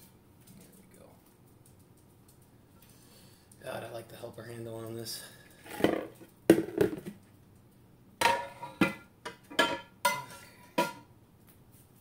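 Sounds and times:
metal frying pan knocks: 8.2s - 11.0s.

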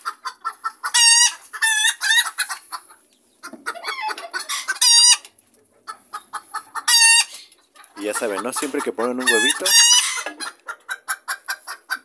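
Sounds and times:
chickens clucking: 0.0s - 12.0s
chickens squawking: 0.0s - 12.0s.

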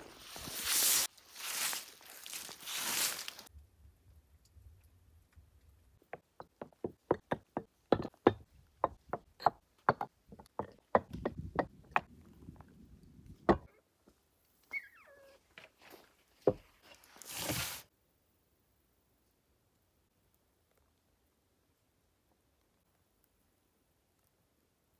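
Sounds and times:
clay pots knocking on wood: 6.1s - 12.1s, 13.5s - 13.7s.

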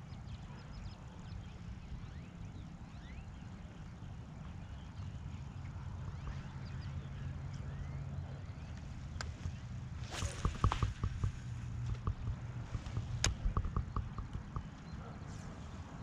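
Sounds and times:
faint bird chirps: 0.0s - 10.8s
wind rumble on microphone: 0.0s - 16.0s.

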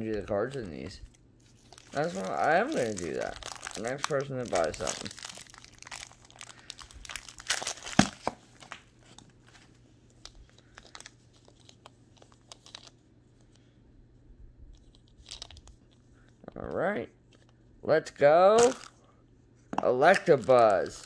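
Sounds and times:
plastic wrapper crinkling: 0.1s - 13.0s, 14.8s - 15.9s, 18.6s - 19.0s, 20.0s - 21.0s
plastic wrapper snap: 1.7s - 8.9s, 18.6s - 18.9s.

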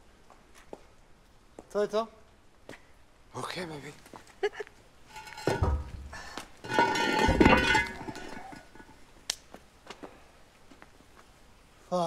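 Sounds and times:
metal scraping on cobbles: 5.0s - 9.1s
metal cover clanking and ringing: 5.1s - 9.0s.

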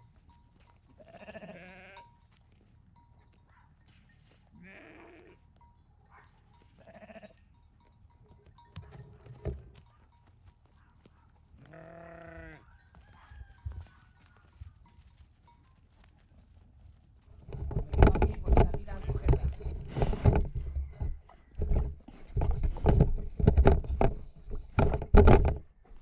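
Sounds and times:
sheep bleating: 1.0s - 2.1s, 4.5s - 5.4s, 6.8s - 7.4s, 11.6s - 12.7s.

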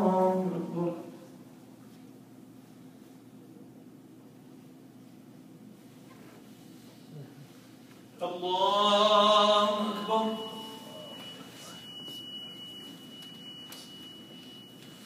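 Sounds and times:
man chanting into a microphone: 0.0s - 1.3s, 8.2s - 11.2s
faint high-pitched tone: 9.6s - 15.0s.

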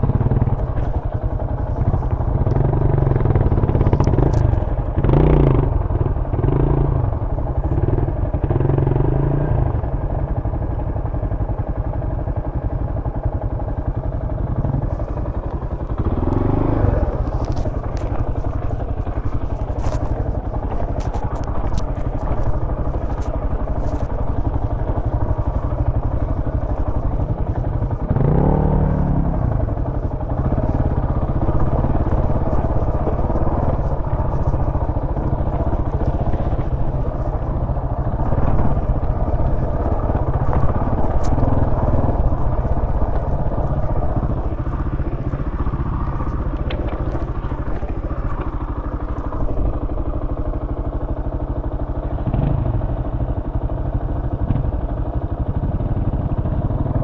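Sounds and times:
dirt bike engine revving: 5.0s - 7.0s, 16.0s - 22.5s, 27.0s - 49.8s.

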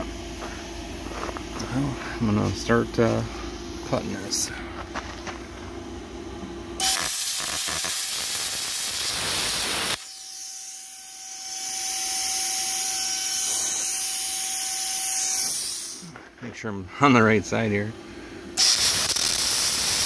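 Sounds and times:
steady whine: 0.0s - 20.0s
plasma cutter hissing: 6.8s - 16.1s, 18.6s - 20.0s.

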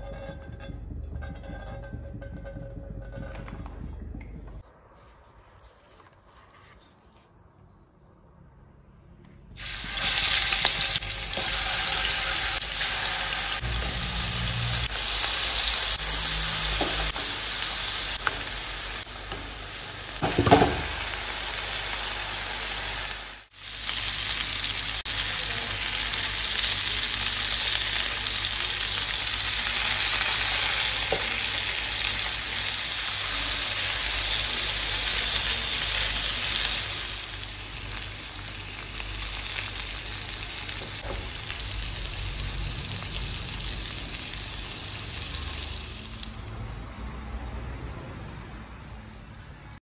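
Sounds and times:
chicken sizzling in hot oil: 9.6s - 46.6s.

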